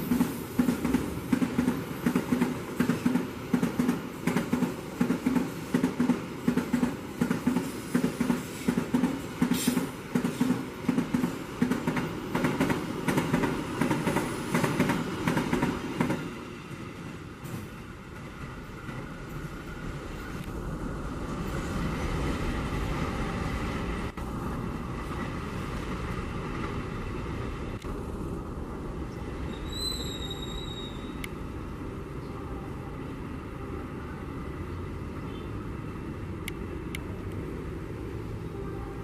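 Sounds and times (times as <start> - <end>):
train wheels rolling on track: 0.0 - 32.2
high wheel squeal: 29.5 - 31.2.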